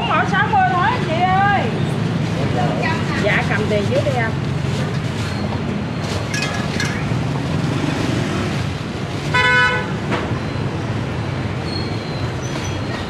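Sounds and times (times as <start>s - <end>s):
street traffic noise: 0.0s - 13.0s
vehicle horn toot: 9.3s - 10.0s.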